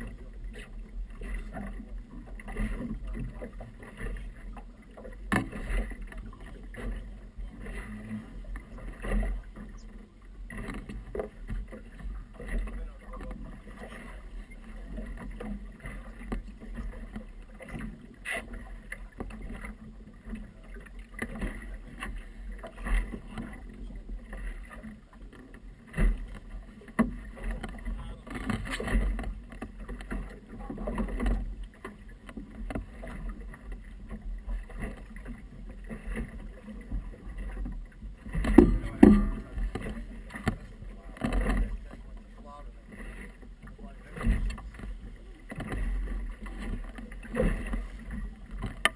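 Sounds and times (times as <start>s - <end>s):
water slapping boat hull: 0.0s - 48.9s
wind rumbling on microphone: 0.0s - 48.9s
knocks on boat: 1.4s - 14.2s, 24.7s - 42.3s, 43.6s - 48.9s.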